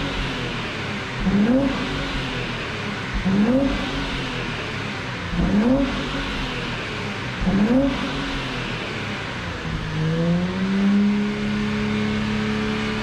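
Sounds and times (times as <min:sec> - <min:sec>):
car engine revving from idle: 0:00.0 - 0:13.0.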